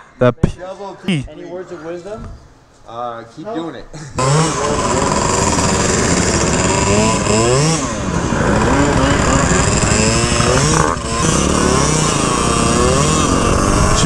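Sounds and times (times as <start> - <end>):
two-stroke scooter engines revving: 4.0 - 14.0.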